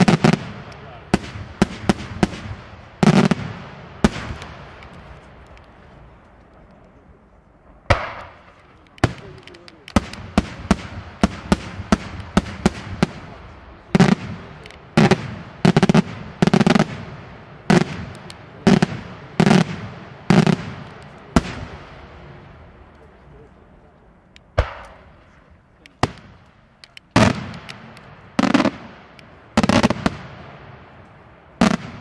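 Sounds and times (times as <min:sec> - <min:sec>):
fireworks bursting with sharp bangs: 0:00.0 - 0:07.0, 0:07.6 - 0:23.2, 0:24.4 - 0:32.0
deep firework reports: 0:00.0 - 0:32.0.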